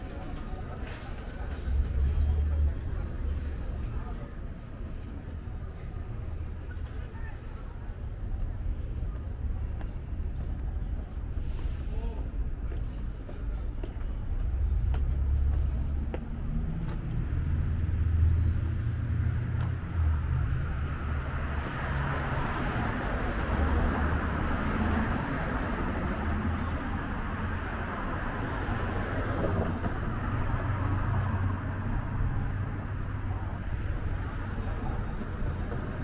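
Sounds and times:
traffic rumble: 0.0 - 36.0
vehicle passing: 14.4 - 36.0.

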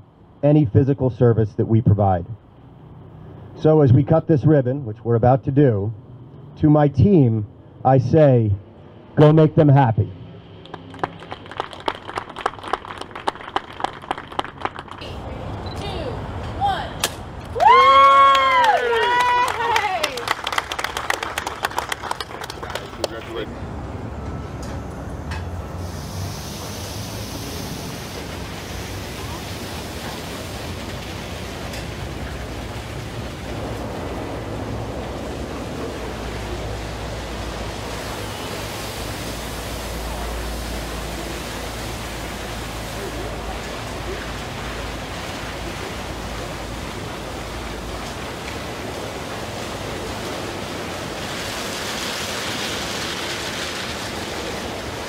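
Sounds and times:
low machinery hum: 0.0 - 55.0
water spraying: 25.5 - 55.0
cloth brushes washing car: 25.8 - 55.0.

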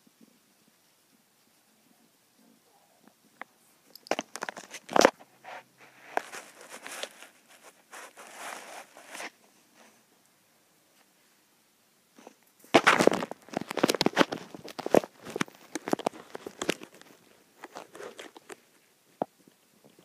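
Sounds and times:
hand rubbing cat fur: 5.4 - 10.0.

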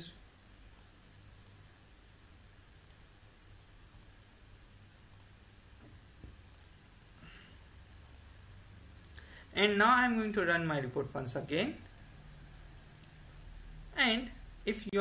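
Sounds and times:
faint low hum: 0.0 - 15.0
computer mouse clicking: 0.7 - 1.6, 2.8 - 3.0, 3.9 - 4.2, 5.1 - 5.4, 6.5 - 7.4, 8.0 - 8.3, 12.8 - 13.2.

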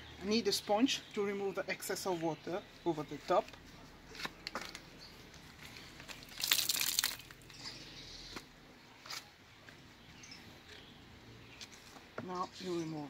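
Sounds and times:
newspaper crinkling: 3.5 - 7.6.

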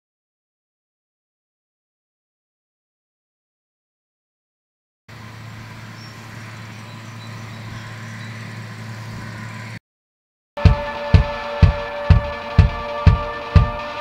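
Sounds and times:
harvester engine hum: 5.1 - 9.8
music with heavy drum beat: 10.6 - 14.0.

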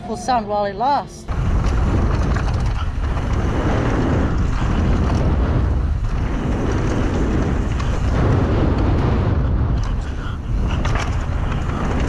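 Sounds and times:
wind rumble on microphone: 0.0 - 12.0
bike tyres on dirt: 1.3 - 12.0
bike knocks and rattles: 1.4 - 12.0.

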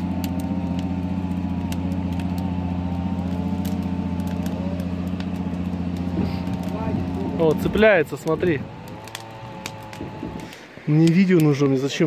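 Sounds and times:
campfire crackling and popping: 0.0 - 12.0
outboard engine droning: 0.0 - 12.0.

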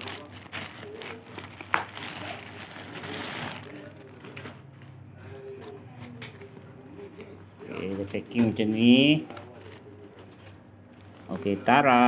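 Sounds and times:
plastic mailer bag crinkling: 0.0 - 4.6.

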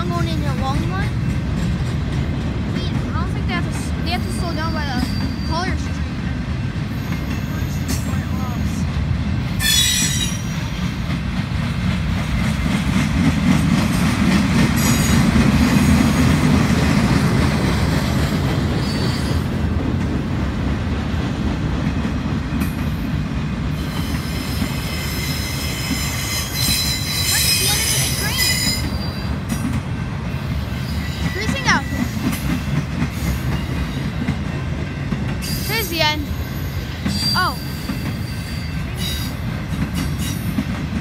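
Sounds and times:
train wheels rumbling on rail: 0.0 - 41.0
high-pitched wheel squeal: 4.3 - 5.8, 9.6 - 10.6, 23.8 - 29.3.

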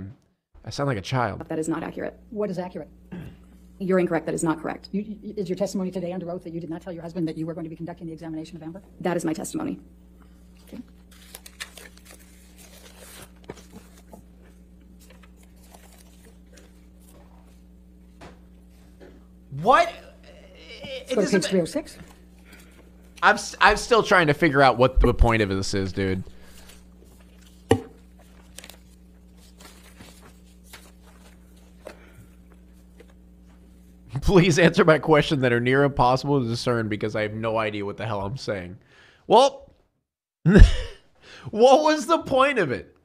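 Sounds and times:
low electrical hum: 0.0 - 39.8, 40.5 - 43.0.

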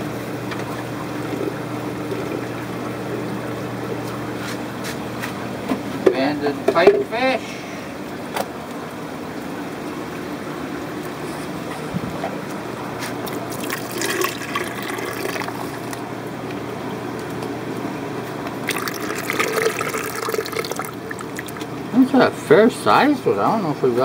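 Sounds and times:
background hum and rush: 0.0 - 23.7
water splashing and trickling: 7.5 - 16.1, 18.6 - 22.0.

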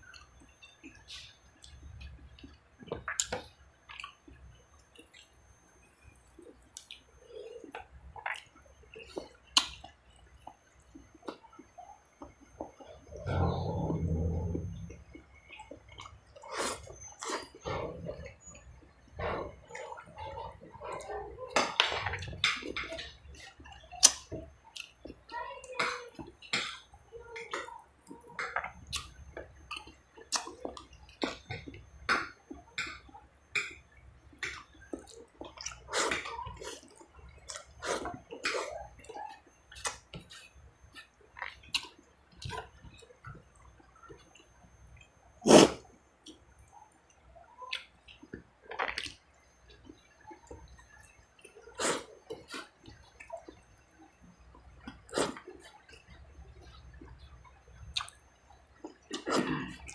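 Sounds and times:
man chewing with wet smacks: 0.0 - 5.4, 6.3 - 19.0, 19.7 - 25.2, 27.4 - 53.6, 54.4 - 59.9.

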